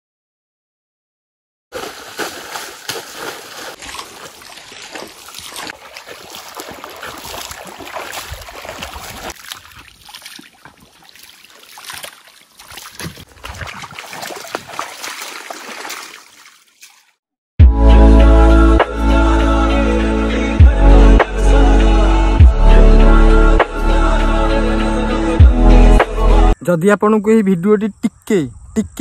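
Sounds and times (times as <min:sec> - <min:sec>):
water splashing in stream: 0:01.8 - 0:17.2.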